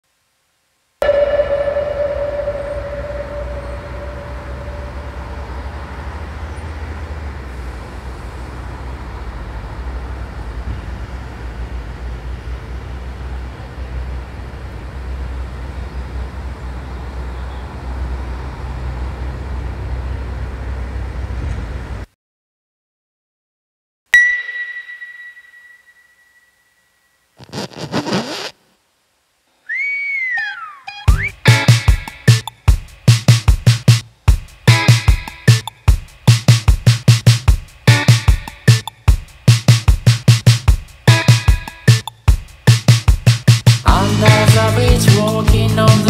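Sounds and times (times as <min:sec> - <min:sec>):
ringing tone: 0:01.0 - 0:06.2, 0:24.2 - 0:27.2
steady low rumble: 0:01.0 - 0:06.5.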